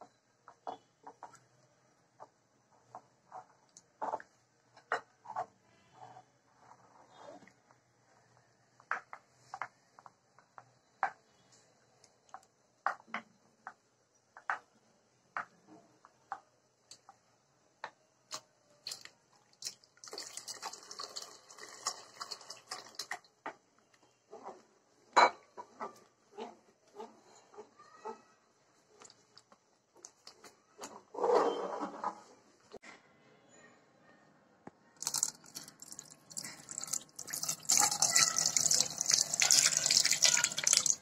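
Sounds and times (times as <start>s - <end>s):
spoon scraping: 35.0s - 41.0s
spoon stirring in a dish: 35.0s - 41.0s.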